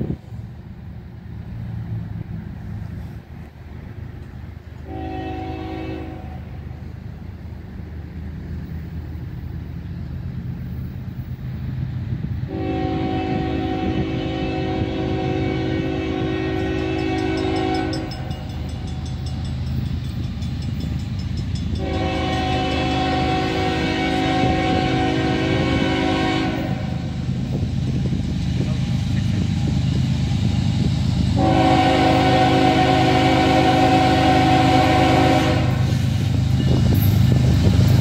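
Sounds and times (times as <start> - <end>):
diesel locomotive rumble: 0.0 - 38.0
train air horn blasts: 4.8 - 6.7, 12.5 - 18.9, 21.7 - 27.2, 31.4 - 36.8.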